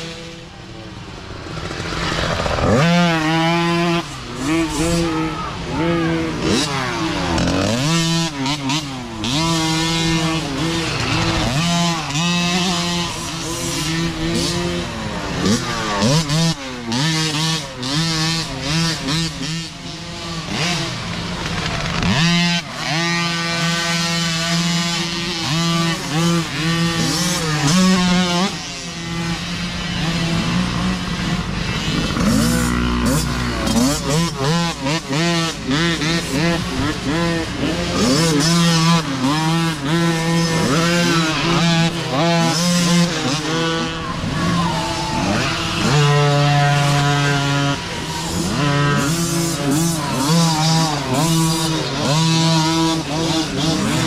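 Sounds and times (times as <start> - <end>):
dirt bikes revving and accelerating: 0.0 - 54.0.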